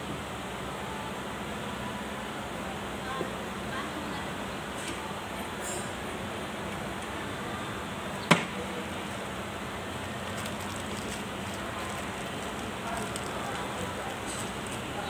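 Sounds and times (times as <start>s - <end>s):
workshop background noise: 0.0s - 15.0s
sharp knock on workbench: 8.3s - 8.5s
plastic wrapping crinkling: 10.1s - 15.0s.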